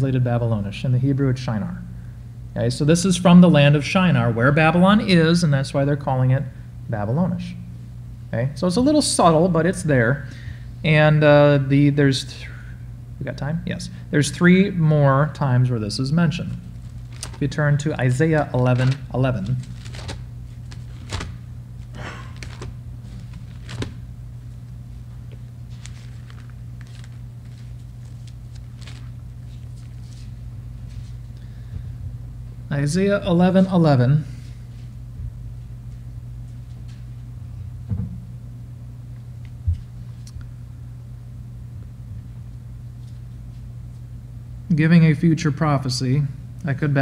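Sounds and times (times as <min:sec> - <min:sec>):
low electrical hum: 0:00.0 - 0:47.0
pages rustling: 0:16.7 - 0:17.6, 0:18.4 - 0:24.1, 0:25.2 - 0:31.2
microphone knocking against book: 0:37.9 - 0:38.3.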